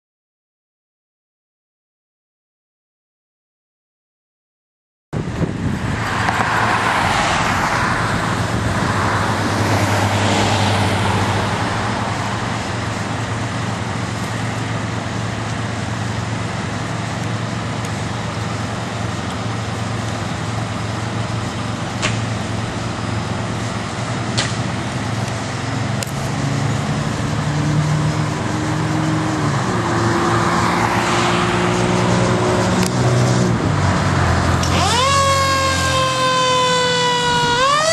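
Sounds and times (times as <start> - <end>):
passing traffic: 5.2 - 37.9
fire engine idling: 12.1 - 26.3.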